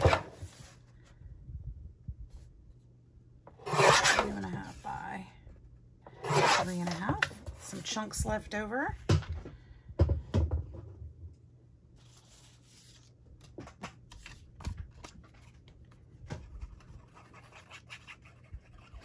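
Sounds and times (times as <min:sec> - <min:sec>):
knocks and thumps on table: 0:09.1 - 0:11.0
paper rustling: 0:12.0 - 0:18.4.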